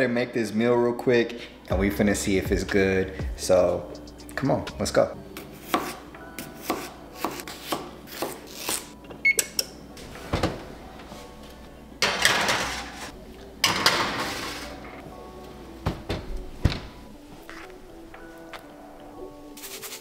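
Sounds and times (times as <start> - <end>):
oven keypad beep: 9.2 - 9.6.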